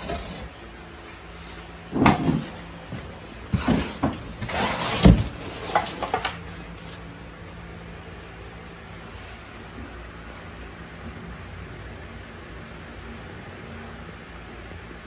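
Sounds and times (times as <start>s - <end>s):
knocks and scrapes of pump handling: 1.9s - 6.9s.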